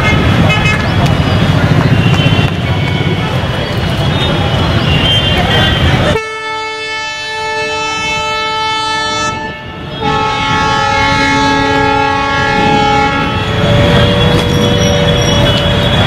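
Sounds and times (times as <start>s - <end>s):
train horn blasts: 6.1s - 16.0s.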